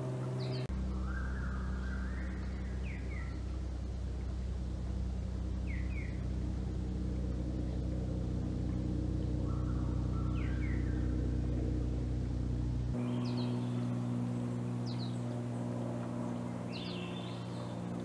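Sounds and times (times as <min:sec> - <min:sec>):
bird chirps: 0:00.0 - 0:03.6, 0:05.6 - 0:06.3, 0:09.3 - 0:11.3, 0:13.0 - 0:18.0
low droning hum: 0:00.0 - 0:18.0.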